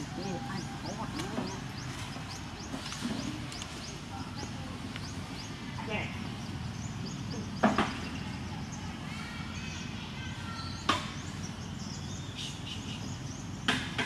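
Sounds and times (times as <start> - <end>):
outdoor background noise: 0.0 - 14.0
sharp knocks: 13.7 - 14.0.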